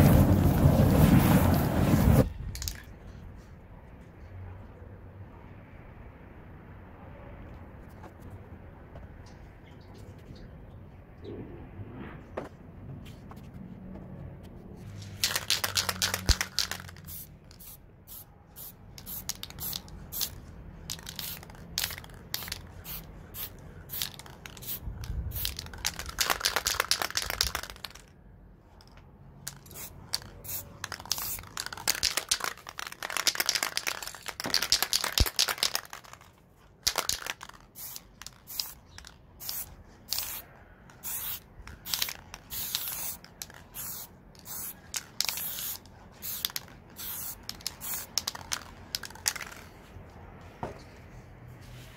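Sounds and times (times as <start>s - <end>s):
spray can hissing: 15.0s - 28.0s, 29.5s - 40.4s, 41.0s - 49.7s.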